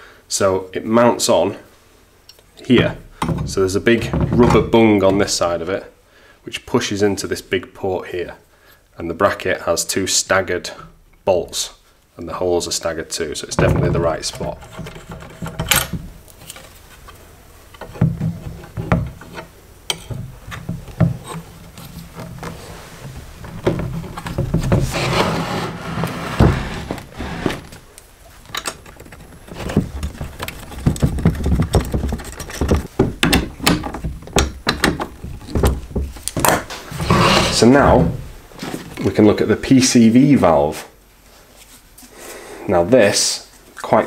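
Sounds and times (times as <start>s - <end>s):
plastic scraping on wood: 13.6s - 39.0s
plastic parts clattering on workbench: 28.5s - 37.6s.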